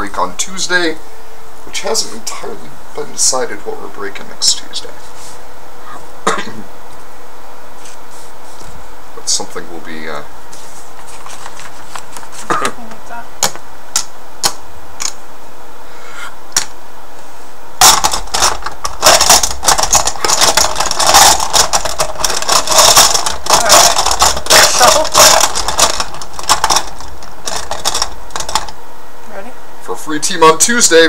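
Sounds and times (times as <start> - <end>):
poker chips rattling in a cup: 17.8 - 28.7.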